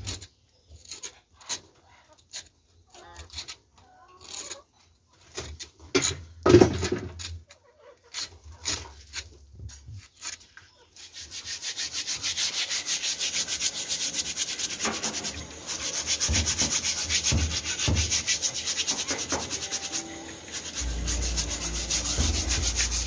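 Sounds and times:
stiff brush scrubbing shell: 0:11.0 - 0:23.0
low rumble: 0:20.8 - 0:23.0.

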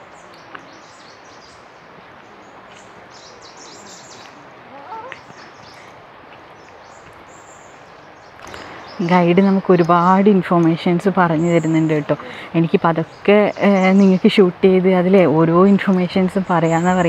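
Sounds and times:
background hiss: 0:00.0 - 0:17.0
small birds chirping: 0:00.0 - 0:17.0.

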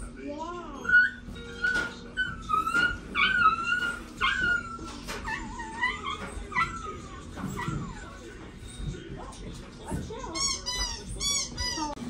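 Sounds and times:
puppy whining: 0:00.0 - 0:09.3, 0:10.1 - 0:12.0.

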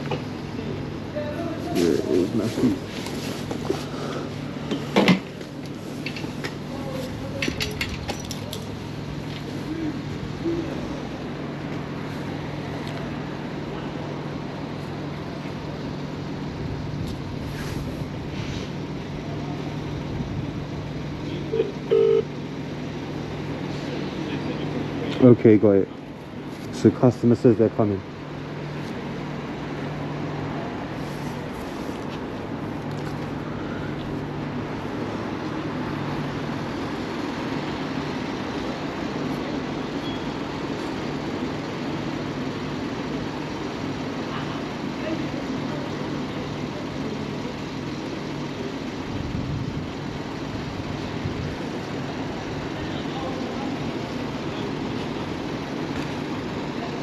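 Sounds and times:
traffic hum: 0:00.0 - 0:57.0
short beeps: 0:21.5 - 0:22.3, 0:40.0 - 0:40.4.

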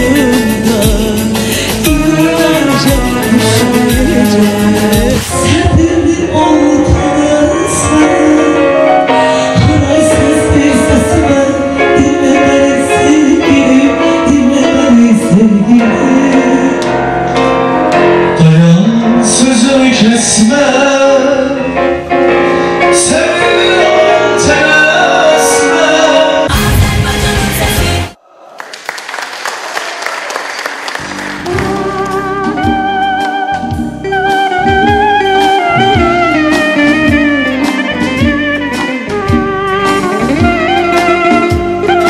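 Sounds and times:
woman and man singing duet: 0:00.0 - 0:16.9
keyboard accompaniment: 0:00.0 - 0:28.2, 0:30.7 - 0:42.0.

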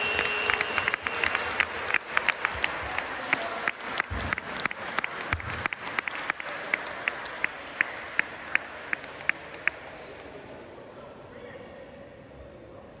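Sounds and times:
rhythmic clapping: 0:00.0 - 0:10.3
spectators applauding: 0:00.0 - 0:10.4.

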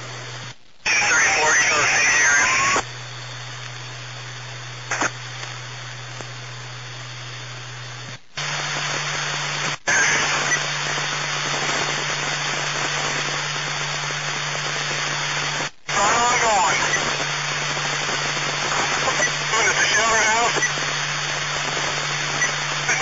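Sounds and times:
radio static hiss: 0:00.0 - 0:23.0.

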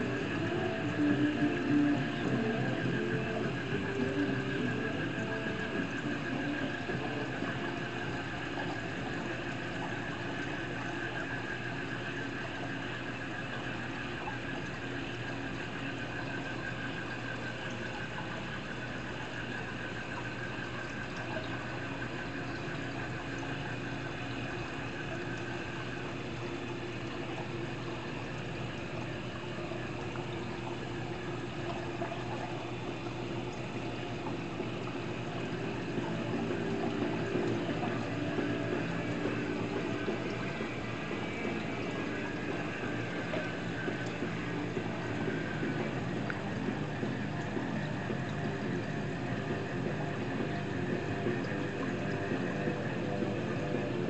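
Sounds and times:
pump hum: 0:00.0 - 0:54.0
water flowing and bubbling: 0:00.0 - 0:54.0.

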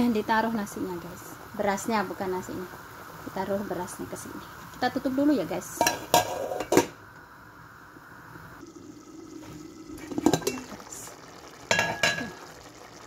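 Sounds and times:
pot lid clinking on rim: 0:05.8 - 0:07.0, 0:10.1 - 0:10.8, 0:11.7 - 0:12.5.

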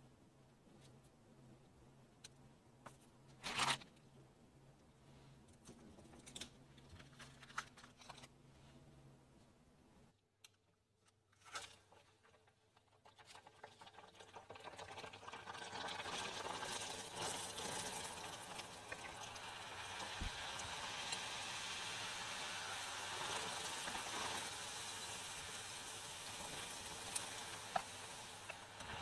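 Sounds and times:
dough sizzling in hot oil: 0:11.9 - 0:29.0.

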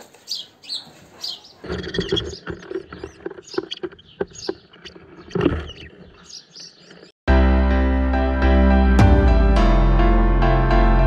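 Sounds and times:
sparrows chirping: 0:00.2 - 0:07.1.

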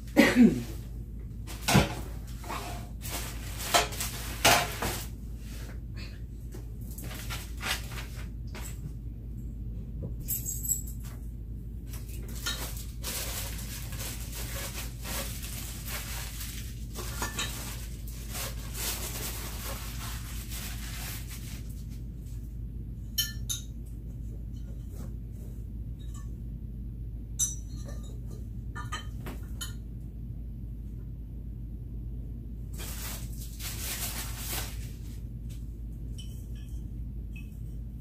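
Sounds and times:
rustling: 0:00.6 - 0:05.8, 0:11.9 - 0:22.4, 0:32.7 - 0:35.6.

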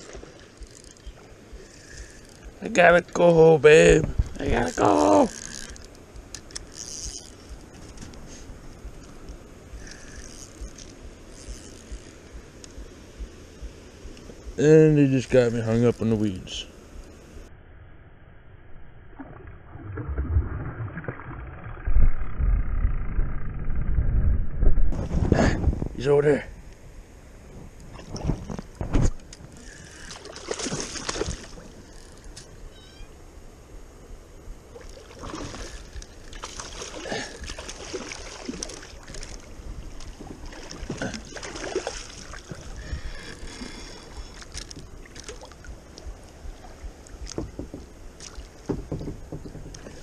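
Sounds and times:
paddle working water: 0:00.0 - 0:16.2, 0:27.8 - 0:33.0, 0:34.6 - 0:50.0
camera handling rumble and knocks: 0:07.3 - 0:08.3, 0:48.6 - 0:50.0
water splashing beside kayak: 0:27.8 - 0:32.4, 0:34.6 - 0:50.0
fish splashing water: 0:30.0 - 0:31.7, 0:34.8 - 0:42.9.

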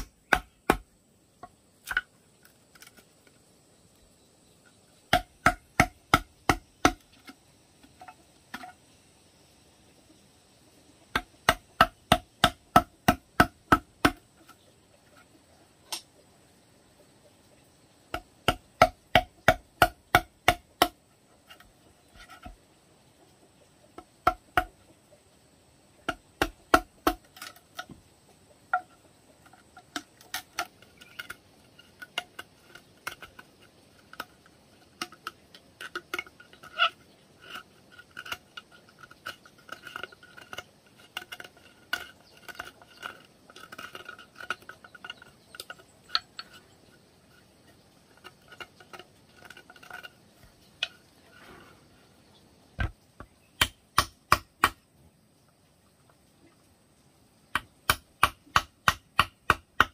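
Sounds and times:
mallet knocking chisel into bamboo: 0:00.0 - 0:00.9, 0:05.1 - 0:07.4, 0:18.1 - 0:21.0, 0:26.0 - 0:28.0, 0:52.8 - 0:54.8, 0:57.5 - 0:59.9
blade scraping bamboo: 0:01.8 - 0:03.4, 0:04.7 - 0:08.9, 0:18.2 - 0:22.6, 0:26.0 - 0:28.0, 0:28.7 - 0:52.2.

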